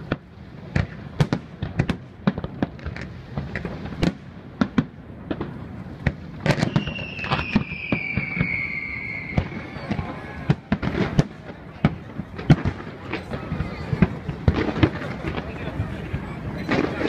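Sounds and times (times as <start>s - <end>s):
fireworks bangs: 0.0s - 17.0s
falling firework whistle: 6.4s - 11.3s.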